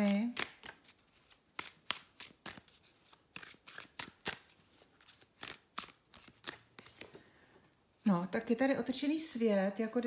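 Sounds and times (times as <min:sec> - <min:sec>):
cards being shuffled: 0:00.0 - 0:07.2.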